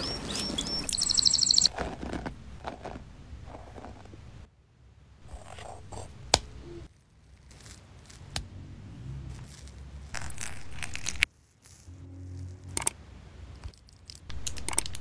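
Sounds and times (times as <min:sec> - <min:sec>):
hands rustling and scraping dough: 0:00.0 - 0:04.5, 0:09.1 - 0:12.7.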